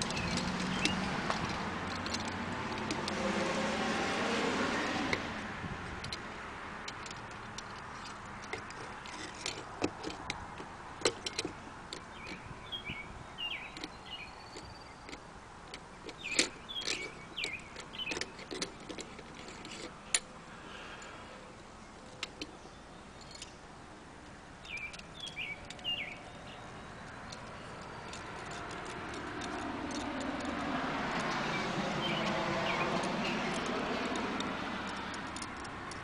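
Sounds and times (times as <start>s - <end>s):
light metal clicks and taps: 0.0s - 3.2s, 5.9s - 12.4s, 13.7s - 20.3s, 22.0s - 22.6s, 27.0s - 36.0s.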